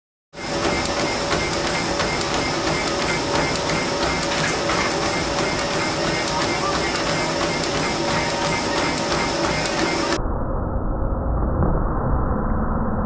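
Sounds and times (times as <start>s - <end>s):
footfalls on treadmill belt: 0.4s - 10.2s
treadmill motor and belt whine: 0.4s - 10.2s.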